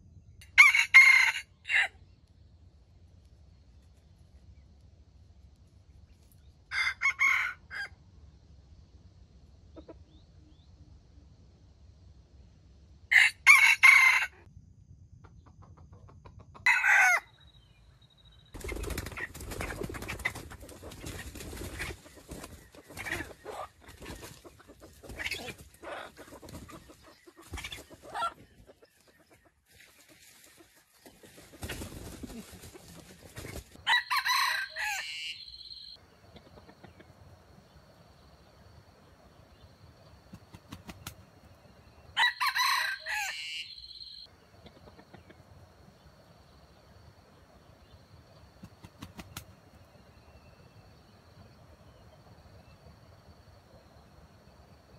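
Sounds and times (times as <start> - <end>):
rooster crowing: 0.5 - 2.0, 6.7 - 8.0, 13.1 - 14.5, 16.6 - 17.3, 33.8 - 36.0, 42.2 - 44.2.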